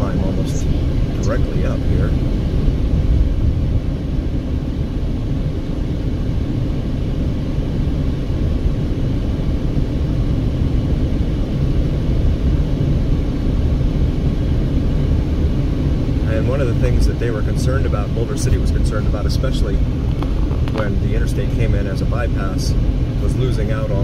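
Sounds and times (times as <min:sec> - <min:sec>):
road and engine noise in car cabin: 0:00.0 - 0:24.0.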